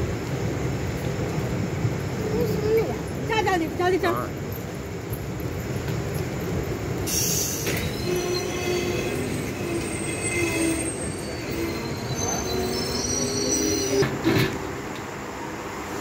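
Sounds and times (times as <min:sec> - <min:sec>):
train rumble: 0:00.0 - 0:16.0
train wheels and brakes squealing: 0:04.6 - 0:14.7.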